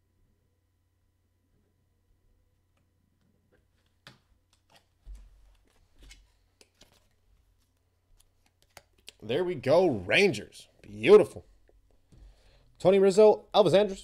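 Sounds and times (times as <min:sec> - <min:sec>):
trading cards clicking and rustling: 0:03.8 - 0:09.2.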